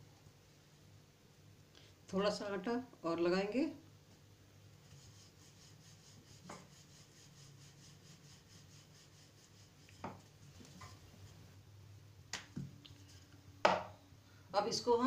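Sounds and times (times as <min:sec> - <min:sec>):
rolling pin rubbing dough: 0:04.8 - 0:11.6.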